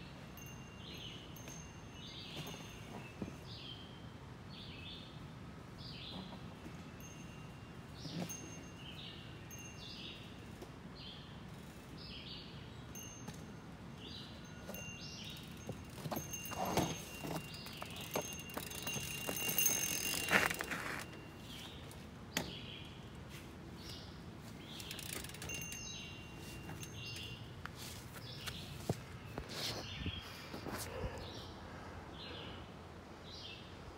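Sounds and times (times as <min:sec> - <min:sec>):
birds chirping: 0:00.0 - 0:33.8
bike rattling over rocks: 0:14.6 - 0:21.9, 0:24.5 - 0:27.2.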